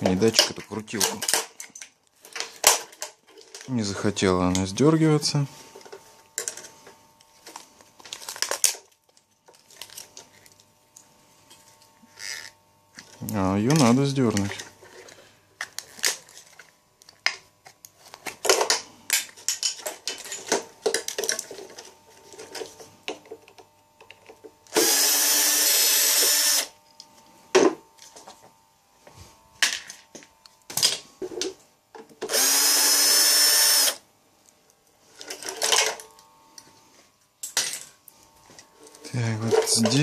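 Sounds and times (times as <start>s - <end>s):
power tool running: 24.7s - 28.2s, 32.2s - 34.1s.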